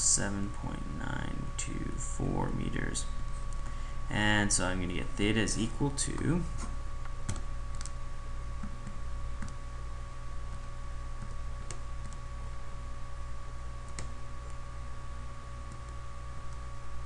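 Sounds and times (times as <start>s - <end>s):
faint steady whine: 0.0s - 17.0s
low electrical hum: 0.0s - 17.0s.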